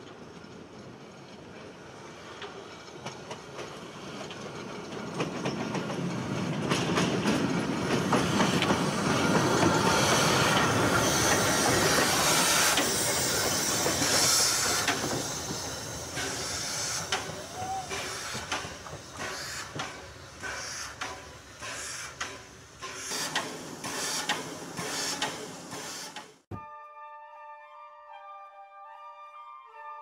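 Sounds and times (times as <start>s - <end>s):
wheels clicking over rail joints: 0.0s - 26.4s
steam locomotive rolling past: 0.0s - 26.5s
hiss of steam: 8.1s - 26.4s.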